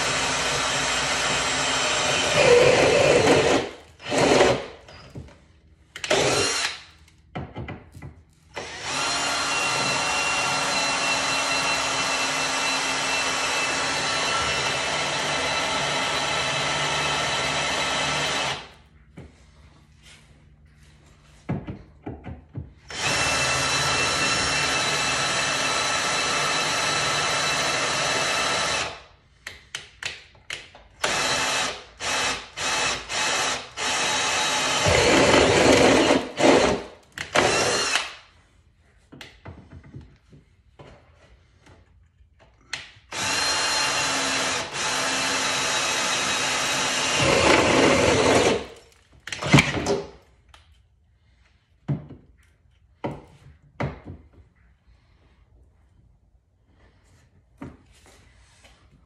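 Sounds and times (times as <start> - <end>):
cordless drill cutting sheet metal: 0.0 - 5.0, 6.0 - 6.9, 8.5 - 18.7, 22.8 - 29.0, 31.0 - 38.2, 43.1 - 50.0.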